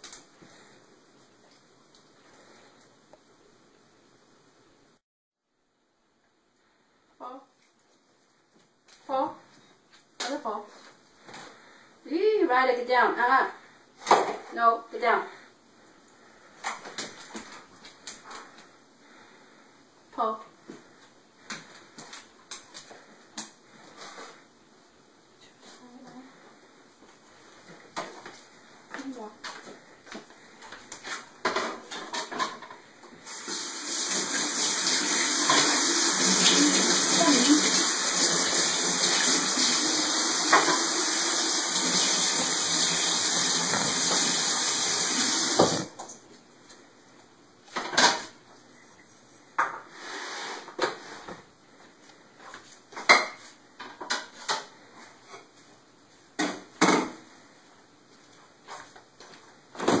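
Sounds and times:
faucet water running into sink: 33.3s - 45.9s.

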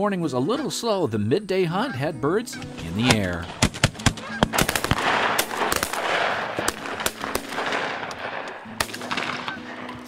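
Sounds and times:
shotguns firing: 2.9s - 10.0s.

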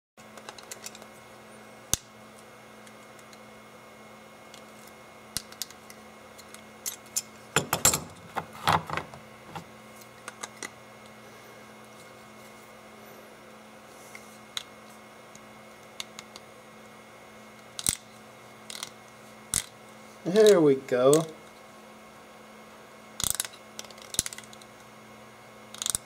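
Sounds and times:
plastic ratchet wrench clicking: 25.7s - 26.0s.

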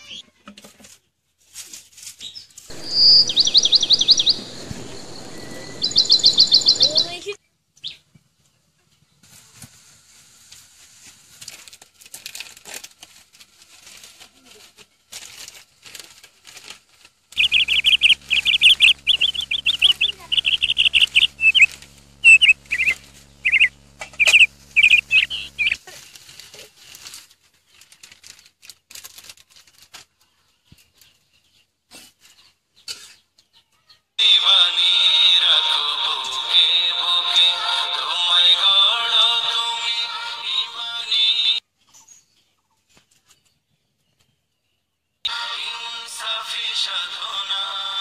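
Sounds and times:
low steady hum: 2.7s - 7.2s, 17.4s - 25.8s
bird chirping rapidly: 2.7s - 7.3s, 17.4s - 25.8s
faint clicks and rustles: 9.2s - 17.5s, 21.6s - 31.1s.

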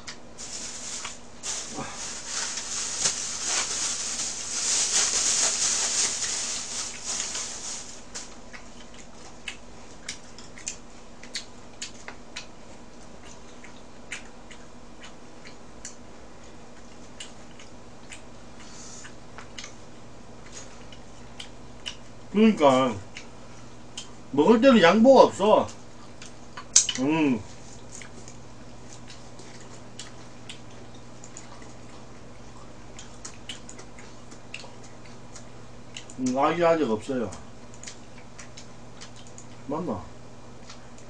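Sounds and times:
rustling noise: 0.4s - 8.4s.

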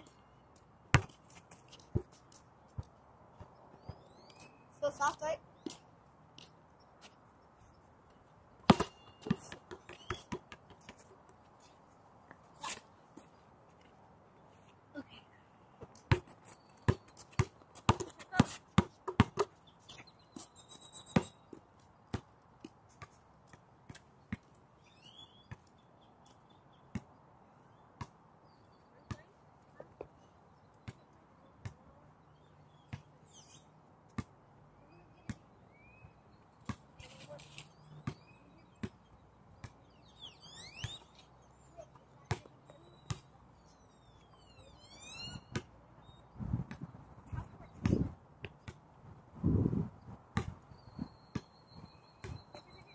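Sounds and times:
basketball bouncing: 8.6s - 10.8s, 16.9s - 19.5s.

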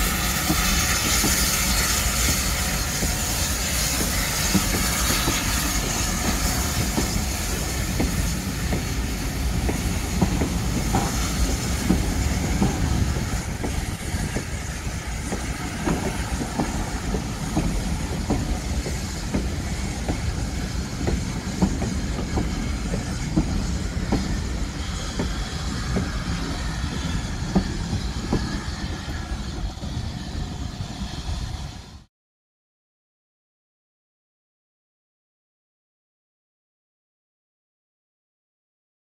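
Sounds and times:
train wheels clicking over rail joints: 0.0s - 31.4s.

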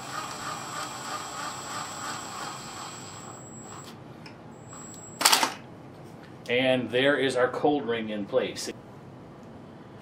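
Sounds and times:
cordless driver whining: 0.0s - 3.8s.

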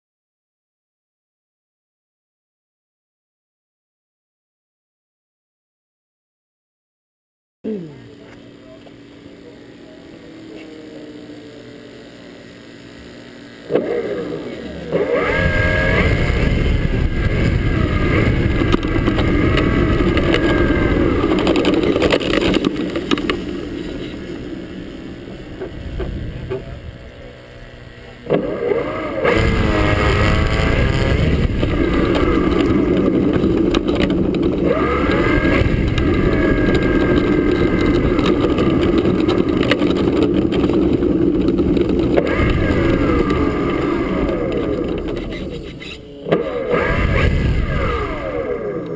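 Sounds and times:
model plane engine and propeller: 7.7s - 48.9s
wheels rumbling on asphalt: 7.7s - 48.9s
sharp ticks: 14.9s - 24.3s, 31.1s - 48.2s.

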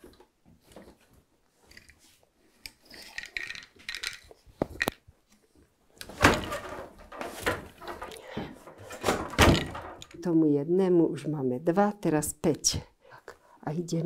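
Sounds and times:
threads rustling on loom: 0.0s - 10.4s.

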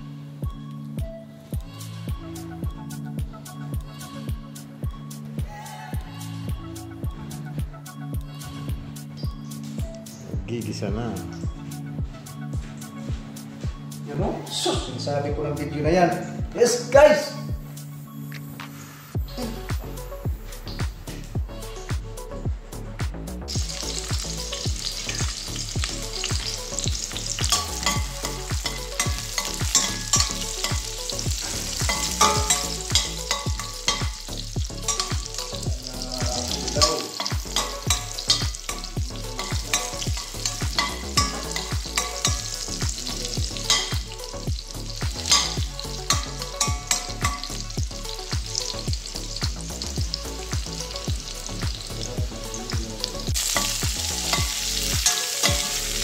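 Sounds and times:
garlic sizzling in oil: 23.4s - 56.0s.

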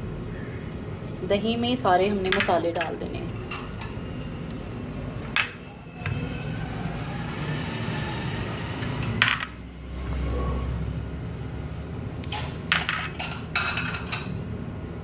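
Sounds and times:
glass bowls clinking: 2.2s - 4.1s, 5.3s - 5.6s, 8.8s - 9.6s, 12.7s - 14.4s.

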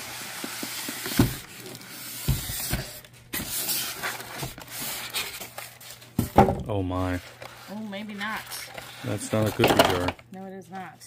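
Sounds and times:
packaging rustling: 0.0s - 10.3s.

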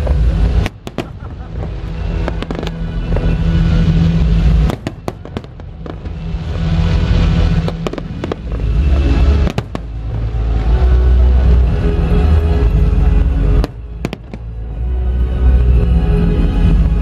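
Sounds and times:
fireworks sharp bangs: 0.0s - 11.6s.

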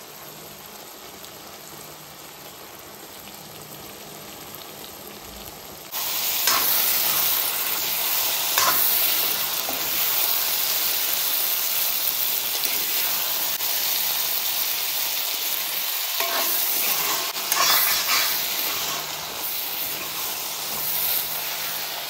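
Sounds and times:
food sizzling in a pan: 0.0s - 22.0s
stirring scrapes: 16.2s - 19.2s.

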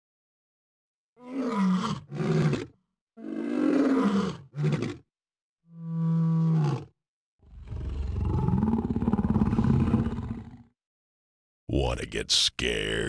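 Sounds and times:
lion roaring: 1.2s - 5.0s, 5.7s - 10.7s.

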